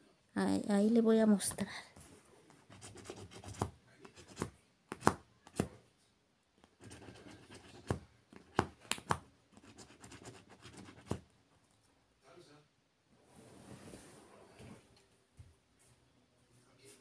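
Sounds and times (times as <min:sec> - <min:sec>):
lottery ticket scratching: 0:06.8 - 0:07.9.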